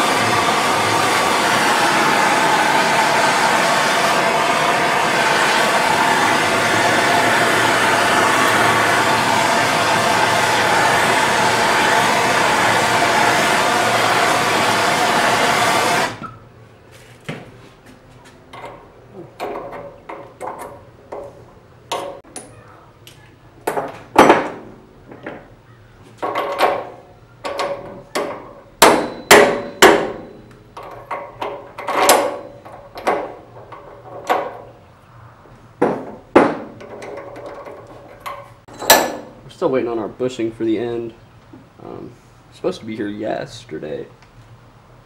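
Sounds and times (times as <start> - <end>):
gas torch hissing: 0.0 - 16.4
metal tools clanking on workbench: 36.8 - 39.4.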